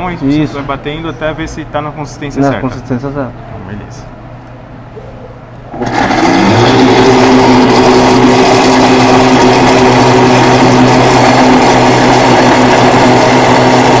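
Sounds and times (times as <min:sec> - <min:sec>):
blender motor running: 0:05.7 - 0:14.0.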